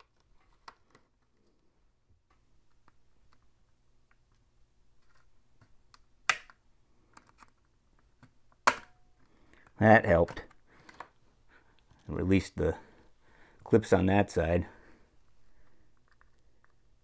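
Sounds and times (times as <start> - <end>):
plastic clicks: 5.0 - 9.0
plastic clip snapping: 5.6 - 7.5.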